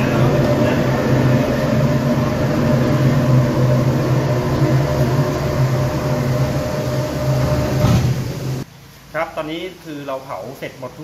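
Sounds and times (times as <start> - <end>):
electric hoist lowering door: 0.0 - 8.6
burners and blowers humming: 0.0 - 8.7.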